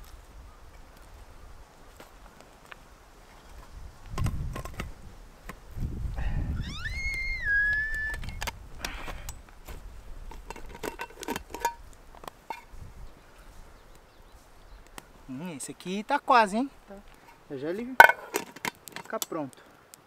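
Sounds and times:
short high-pitched call: 0:06.6 - 0:08.4
metal cookware clinking: 0:10.4 - 0:11.8.

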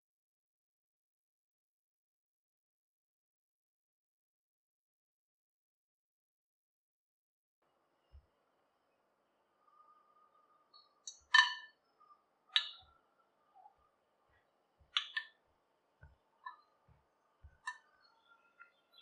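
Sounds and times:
spoon clinking metal pot: 0:11.1 - 0:11.7.

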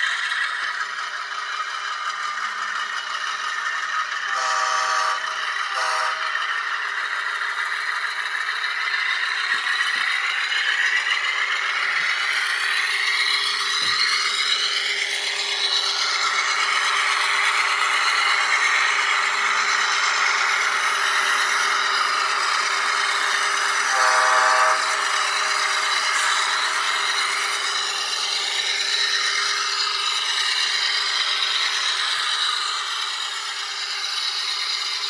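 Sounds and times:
diesel engine sound from tiny speaker: 0:00.0 - 0:35.0.

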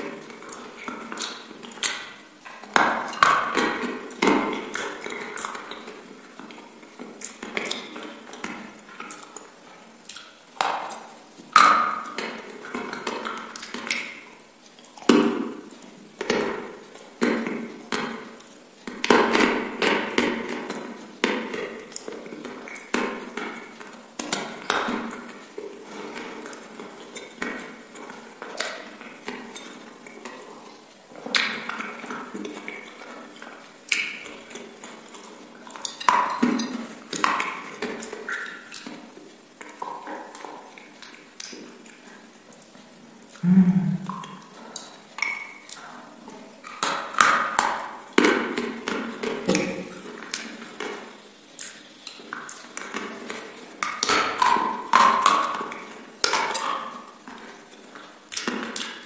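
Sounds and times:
chewing with crunches: 0:00.0 - 0:59.0
lip and tongue smacks: 0:39.6 - 0:45.9, 0:51.6 - 0:56.9.

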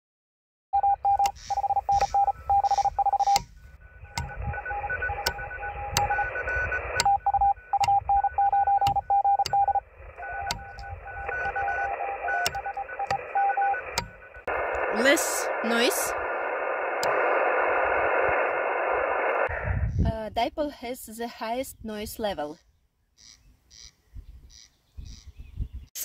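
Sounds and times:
morse code tones: 0:00.8 - 0:16.2
sharp clicks: 0:01.1 - 0:03.5, 0:04.1 - 0:04.5, 0:05.2 - 0:14.9, 0:17.0 - 0:17.3
radio band noise hiss: 0:01.3 - 0:07.0, 0:09.7 - 0:20.0.

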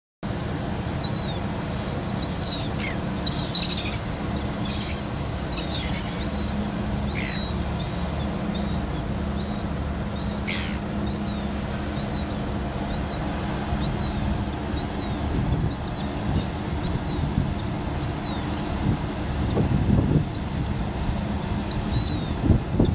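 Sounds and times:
tug engines droning: 0:00.3 - 0:22.9
gulls descending cries: 0:00.6 - 0:19.8
gulls chirping: 0:00.8 - 0:22.4.

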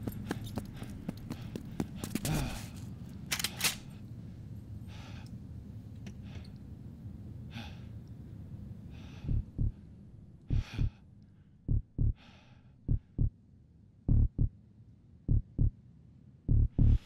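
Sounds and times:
heavy breathing: 0:00.0 - 0:05.4, 0:07.5 - 0:13.3, 0:16.8 - 0:17.0
low rumble: 0:08.5 - 0:11.0, 0:11.6 - 0:12.2, 0:12.8 - 0:13.4, 0:14.1 - 0:14.6, 0:15.2 - 0:15.8, 0:16.4 - 0:17.0
heartbeat double thump: 0:09.3 - 0:09.8, 0:10.5 - 0:11.0, 0:11.7 - 0:12.2, 0:12.9 - 0:13.3, 0:14.1 - 0:14.5, 0:15.3 - 0:15.7, 0:16.5 - 0:17.0.

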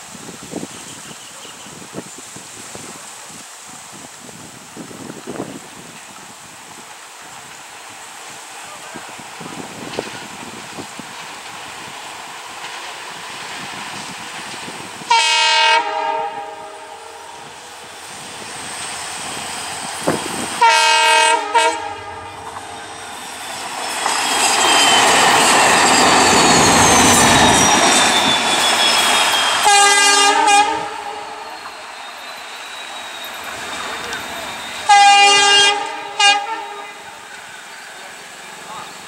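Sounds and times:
locomotives passing with wheel noise: 0:00.0 - 0:15.2, 0:15.8 - 0:39.0
locomotive horn: 0:15.1 - 0:17.6, 0:20.6 - 0:22.9, 0:27.6 - 0:31.5, 0:34.8 - 0:37.1
high falling whine: 0:21.3 - 0:29.7.

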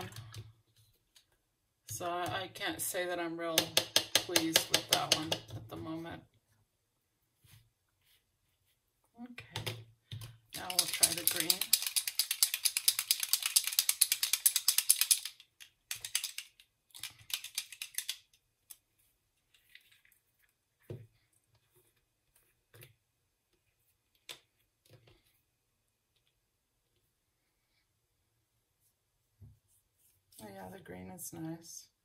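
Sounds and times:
mixing ball rattling: 0:10.6 - 0:18.1
ink bottle shaken: 0:10.6 - 0:18.2.

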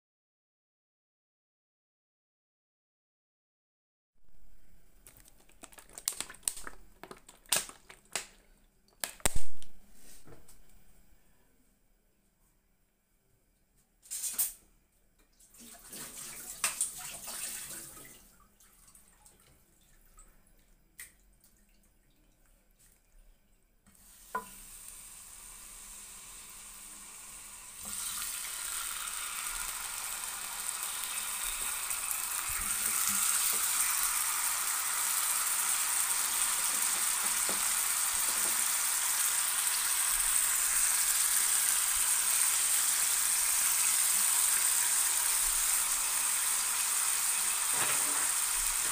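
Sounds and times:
chicken sizzling in hot oil: 0:24.0 - 0:48.9.

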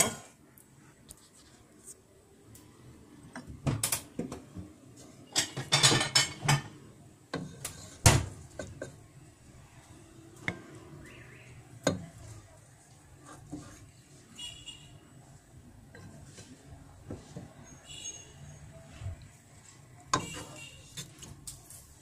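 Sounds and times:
utensils knocking against a pot: 0:05.3 - 0:06.8.

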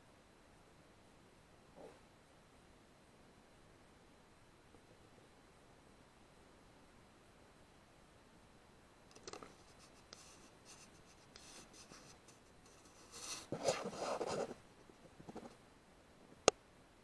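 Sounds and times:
scratching and rubbing on rifle: 0:09.3 - 0:15.6.

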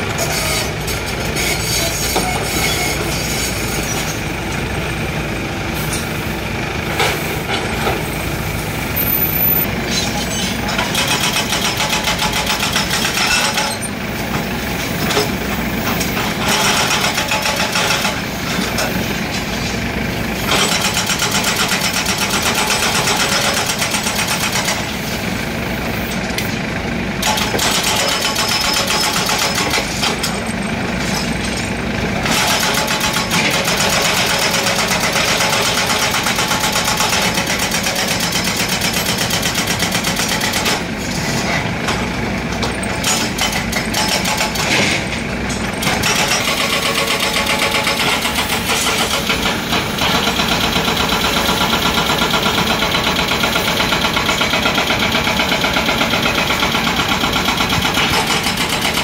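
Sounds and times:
excavator diesel engine running: 0:00.0 - 0:59.0
hydraulic breaker hammering concrete: 0:10.7 - 0:14.5, 0:16.0 - 0:19.0, 0:20.5 - 0:24.9, 0:27.2 - 0:30.5, 0:32.2 - 0:41.0, 0:42.0 - 0:59.0.

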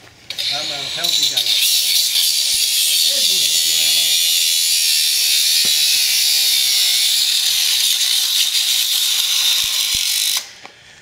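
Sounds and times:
angle grinder cutting metal: 0:00.3 - 0:10.6.

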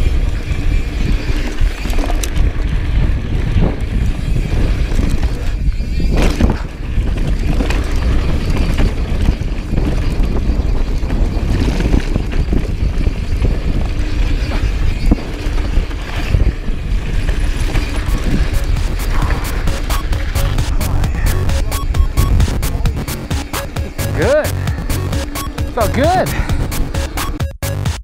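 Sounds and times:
bike chain and frame clattering: 0:00.0 - 0:21.7
tyres rumbling over dirt and rocks: 0:00.0 - 0:27.1.

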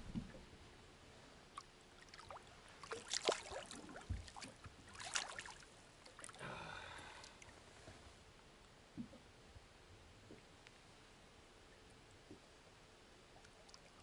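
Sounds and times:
water splashing against boat: 0:02.0 - 0:06.4.

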